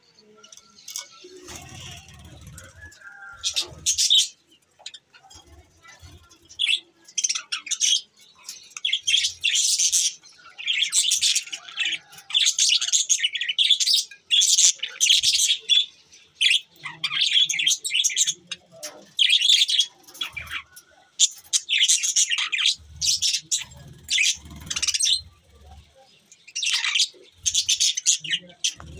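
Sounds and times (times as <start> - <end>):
budgerigars chirping: 6.6 - 28.9.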